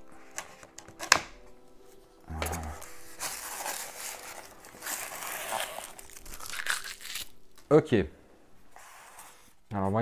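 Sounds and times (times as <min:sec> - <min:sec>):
soft background music: 0:00.0 - 0:10.0
knife slitting packing tape: 0:03.2 - 0:07.4.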